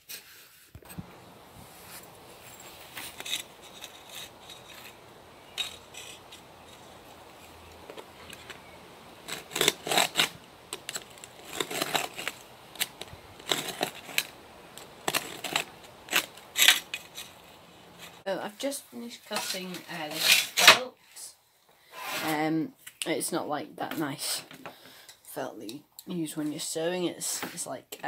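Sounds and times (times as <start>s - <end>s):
knife cutting roofing felt: 2.8s - 7.3s, 8.0s - 18.2s.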